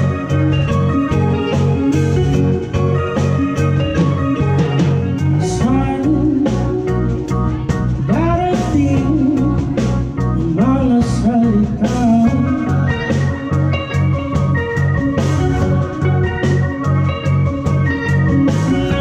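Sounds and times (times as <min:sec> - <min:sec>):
live band playing: 0:00.0 - 0:19.0
man singing into a microphone: 0:05.4 - 0:07.2, 0:08.0 - 0:13.1.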